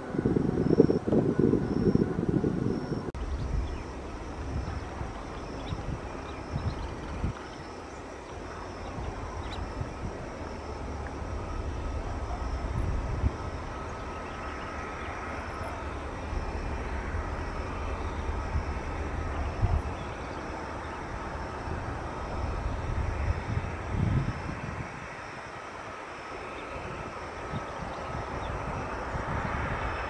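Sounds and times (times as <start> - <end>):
distant jet engine rumble: 0.0 - 30.0
faint jet engine whine: 0.0 - 30.0.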